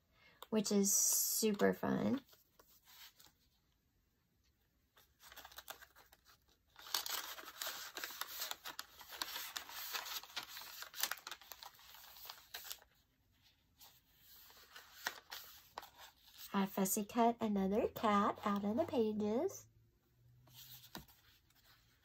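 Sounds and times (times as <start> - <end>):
page turning: 5.0 - 13.0, 13.8 - 16.5, 20.5 - 22.0
paper rustling and sliding: 5.2 - 13.0, 13.8 - 16.5, 20.4 - 22.0.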